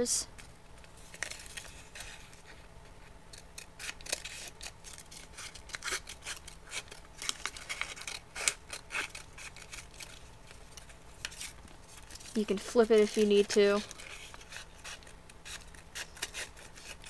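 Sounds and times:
scissors snipping paper: 0:03.3 - 0:17.0.

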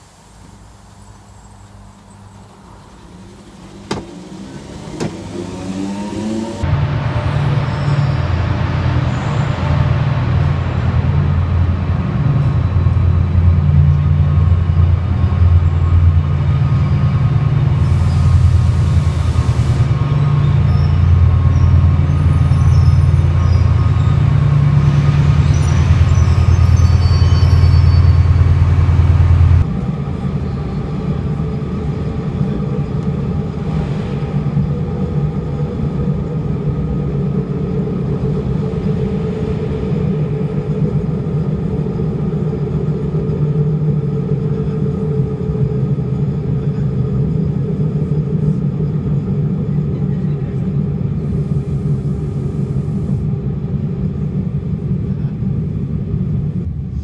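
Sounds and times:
air hissing: 0:00.0 - 0:06.6, 0:17.8 - 0:20.0
brakes squealing: 0:00.0 - 0:29.6
diesel locomotive engine drone: 0:00.0 - 0:57.0
rumble inside passenger train: 0:00.0 - 0:57.0.

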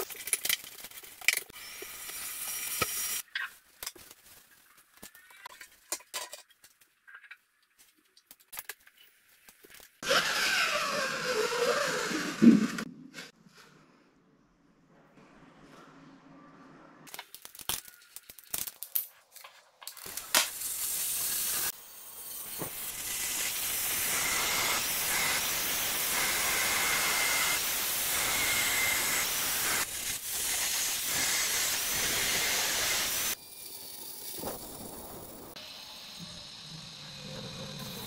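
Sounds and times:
angle grinder cutting stone: 0:10.0 - 0:12.9, 0:21.0 - 0:33.4.

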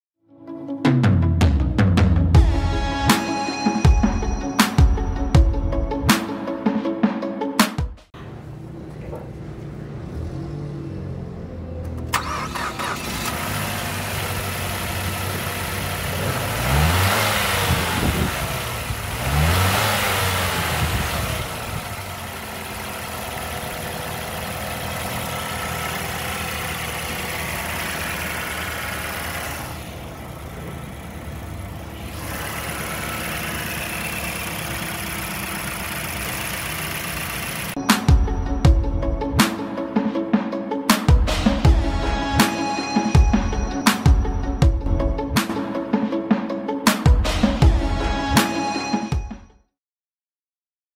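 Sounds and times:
car engine idling and revving: 0:08.1 - 0:39.9.

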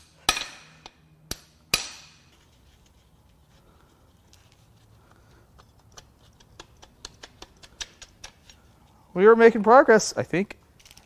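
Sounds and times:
shop hum: 0:00.0 - 0:07.6.

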